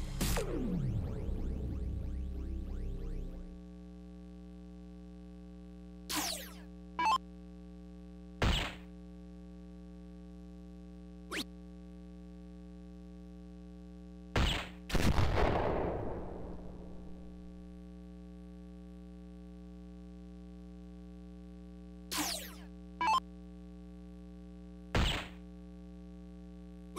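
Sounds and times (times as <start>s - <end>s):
electronic dart hit sounds: 0.0s - 3.4s, 6.1s - 7.2s, 8.4s - 8.9s, 14.3s - 17.2s, 22.1s - 23.2s, 24.9s - 25.4s
electronic falling swoosh: 0.0s - 3.5s
longer electronic sound effect: 0.0s - 3.6s, 6.1s - 7.2s, 22.1s - 23.2s
steady hum: 0.0s - 14.3s.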